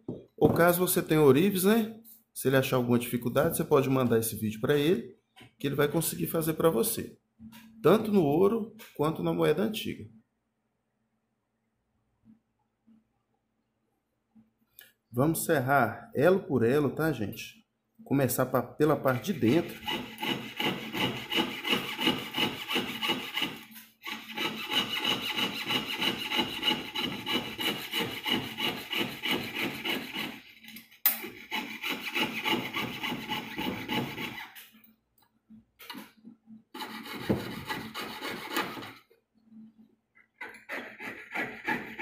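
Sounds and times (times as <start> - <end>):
piercing saw cutting metal: 19.4 - 34.7, 36.8 - 39.0, 40.4 - 42.0.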